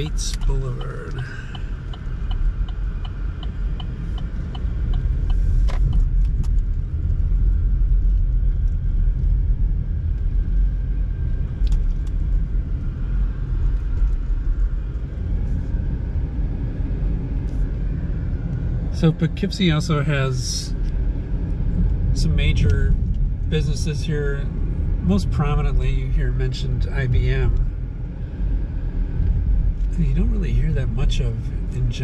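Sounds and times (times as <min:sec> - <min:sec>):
turn signal ticking: 0:00.0 - 0:07.4
road and engine rumble: 0:00.0 - 0:32.0.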